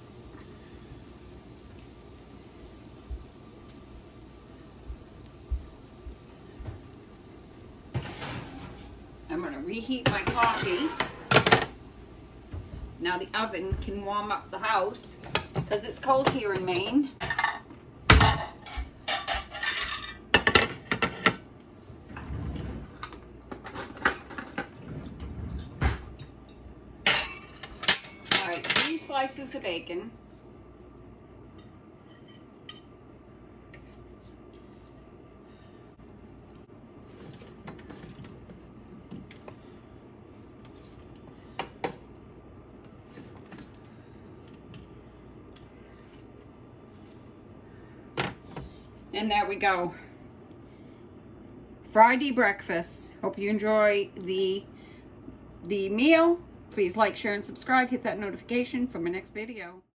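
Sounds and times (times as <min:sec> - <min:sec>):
low steady hum: 0:00.0 - 0:59.9
kitchen utensils clattering: 0:10.0 - 0:11.8, 0:16.1 - 0:21.4, 0:22.9 - 0:29.2
dishes and cutlery clinking: 0:17.2 - 0:21.4, 0:25.6 - 0:29.0, 0:32.0 - 0:32.9.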